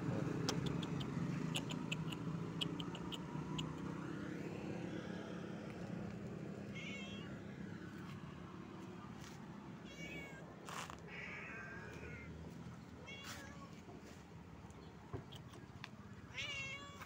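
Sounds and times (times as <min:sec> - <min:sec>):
cat meowing: 0:06.7 - 0:07.4, 0:09.8 - 0:10.4, 0:11.0 - 0:12.3, 0:13.0 - 0:13.8, 0:16.3 - 0:17.0.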